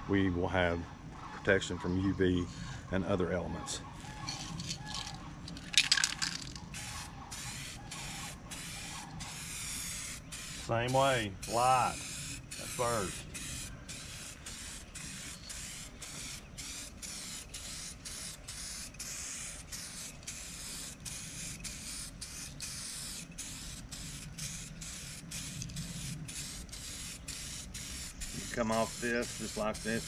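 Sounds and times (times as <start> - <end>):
aerosol can spraying hiss: 6.7 - 30.0.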